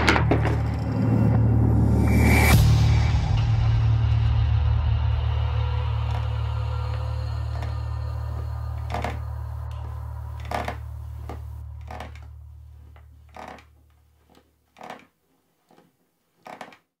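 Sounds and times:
low drone score: 0:00.0 - 0:12.8
rocking chair creaking: 0:06.0 - 0:17.0.

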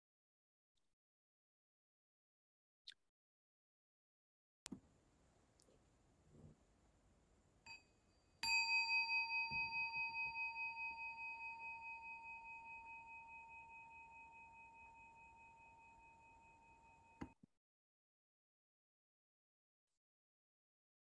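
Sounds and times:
singing bowl ringing: 0:07.7 - 0:17.3.

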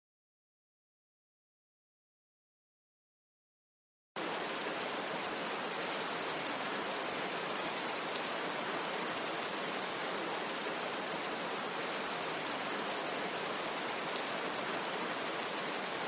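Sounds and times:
steady rain hiss: 0:04.2 - 0:16.0.

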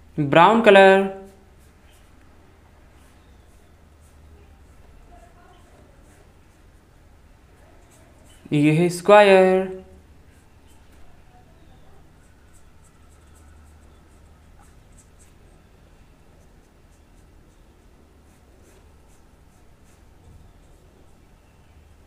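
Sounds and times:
faint low hum: 0:00.0 - 0:22.0
paintbrush swishes on paper: 0:01.0 - 0:06.8, 0:12.1 - 0:15.6, 0:16.4 - 0:21.6.

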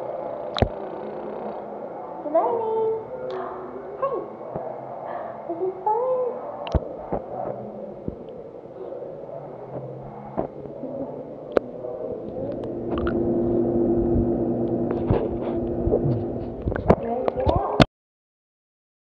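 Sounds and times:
steady low hum: 0:06.4 - 0:17.6
muffled underwater rumbling: 0:11.2 - 0:17.6.

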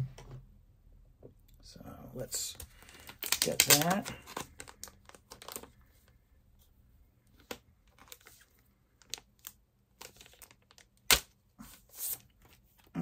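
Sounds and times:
packaging clicks: 0:02.6 - 0:05.7
packaging rustling: 0:02.6 - 0:06.2, 0:07.4 - 0:11.1.

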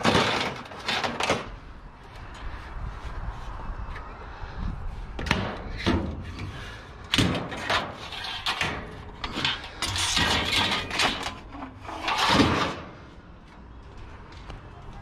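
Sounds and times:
scrap metal knocks and clatters: 0:00.0 - 0:01.5, 0:05.2 - 0:13.1.

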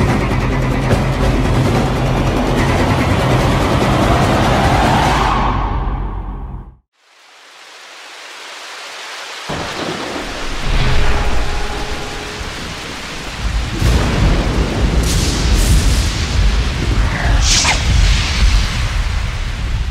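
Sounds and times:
rain hiss: 0:06.9 - 0:19.9
thunder rolling: 0:09.5 - 0:19.9.

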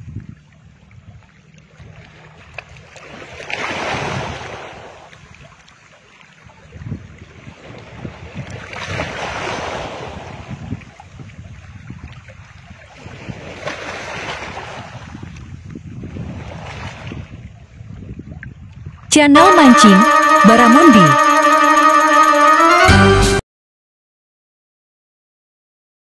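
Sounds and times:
wind buffeting microphone: 0:14.4 - 0:19.0.

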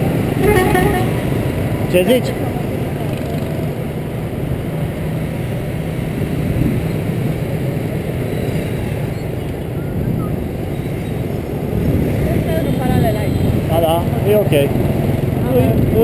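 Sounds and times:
motor scooter engine hum: 0:00.0 - 0:16.0
road noise: 0:00.0 - 0:16.0.

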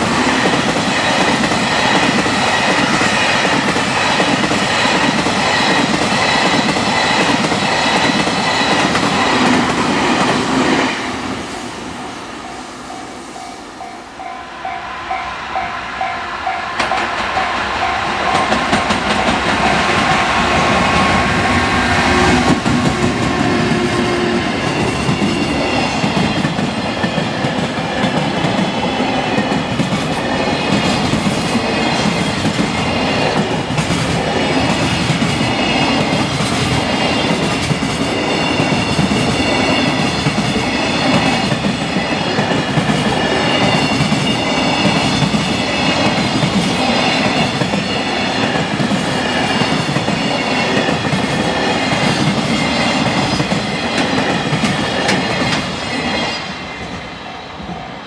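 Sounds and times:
freight train rumbling past: 0:00.0 - 0:58.0
level-crossing bell ringing: 0:12.4 - 0:19.4.

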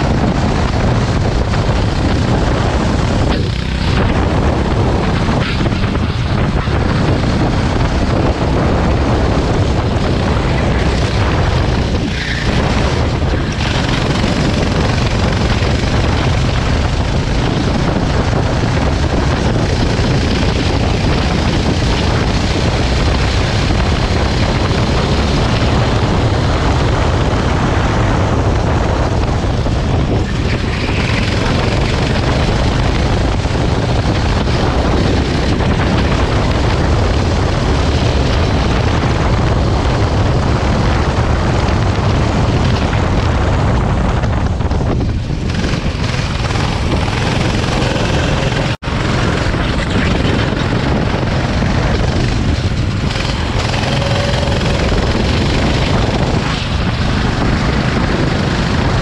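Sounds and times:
go-kart engine running: 0:00.0 - 0:59.0
wind buffeting microphone: 0:00.0 - 0:59.0.

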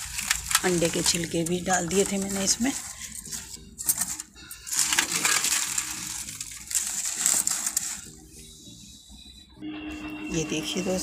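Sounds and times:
dry leaves rustling and crackling: 0:00.0 - 0:08.1.

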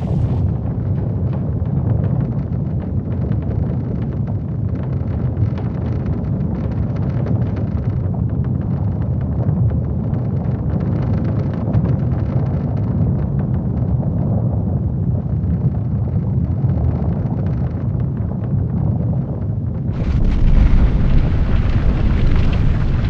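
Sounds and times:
crackling: 0:00.0 - 0:00.9, 0:19.9 - 0:23.0
low earthquake rumble: 0:00.0 - 0:23.0.

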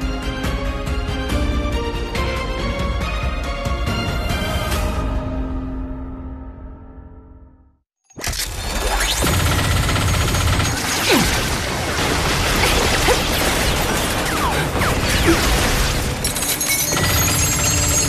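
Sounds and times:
music: 0:00.0 - 0:07.9, 0:14.1 - 0:18.0
machine-gun fire: 0:09.2 - 0:16.2.

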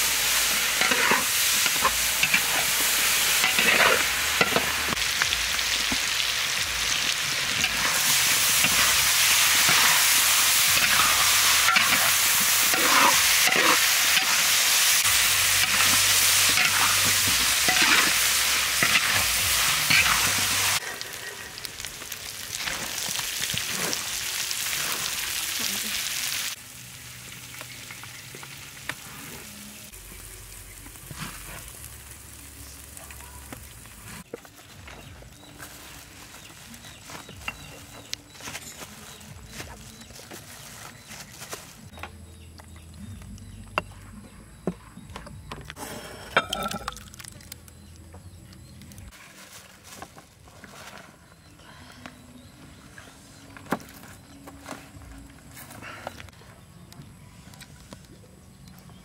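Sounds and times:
food sizzling in a pan: 0:00.0 - 0:34.3
utensil scraping a pan: 0:07.6 - 0:14.4.

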